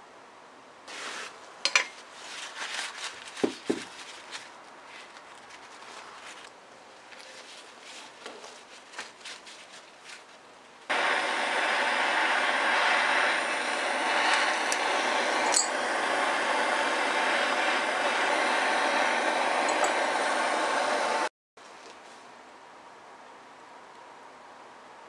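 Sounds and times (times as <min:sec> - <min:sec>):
butane torch hissing: 0:10.9 - 0:21.3.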